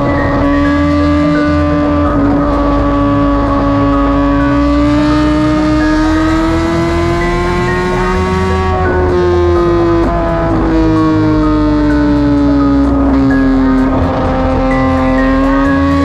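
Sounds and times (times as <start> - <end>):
motorcycle engine at high revs: 0.0 - 16.0.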